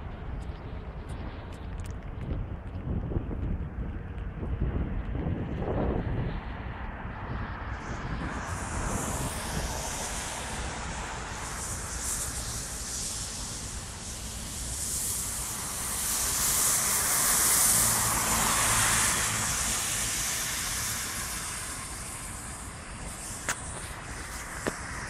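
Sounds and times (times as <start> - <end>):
steady low rumble: 0.0 - 25.0
tyres hissing on wet road: 6.4 - 25.0.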